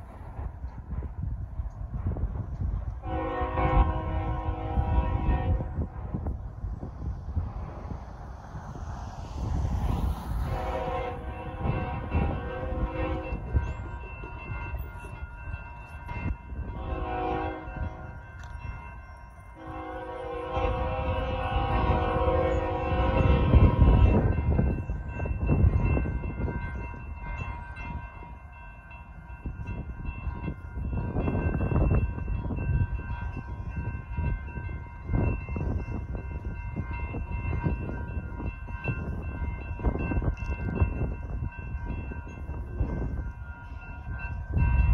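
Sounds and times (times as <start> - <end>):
train rumbling: 0.0 - 44.9
locomotive air horn blasts: 3.0 - 5.8, 10.4 - 13.5, 16.8 - 18.1, 19.6 - 24.0
crossing bells ringing: 8.8 - 44.9.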